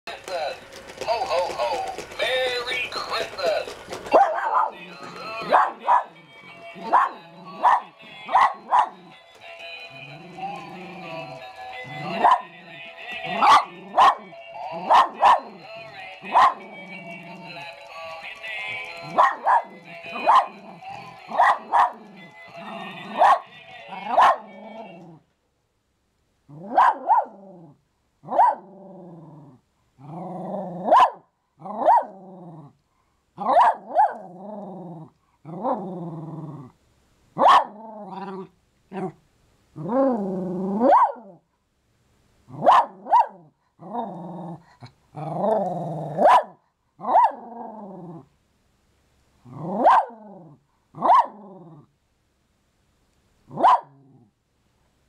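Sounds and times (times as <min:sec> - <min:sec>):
dog barking and growling: 0:03.4 - 0:09.2, 0:10.1 - 0:17.6, 0:18.9 - 0:25.2, 0:26.5 - 0:32.8, 0:33.4 - 0:36.8, 0:37.4 - 0:39.2, 0:39.8 - 0:41.4, 0:42.5 - 0:48.3, 0:49.4 - 0:51.9, 0:53.5 - 0:54.3.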